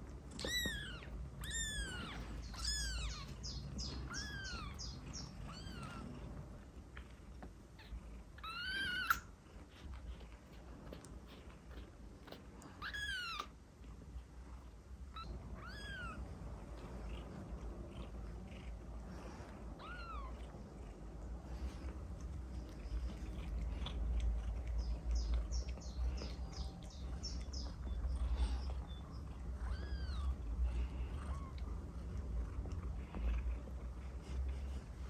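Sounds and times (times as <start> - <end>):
kitten chirping: 0.3 - 6.3, 7.8 - 9.9, 11.3 - 13.5, 15.0 - 17.3, 19.8 - 20.5, 22.6 - 31.7
kitten meowing: 0.4 - 6.1, 7.8 - 9.3, 12.8 - 13.5, 15.1 - 16.2, 19.8 - 20.4, 29.6 - 30.4.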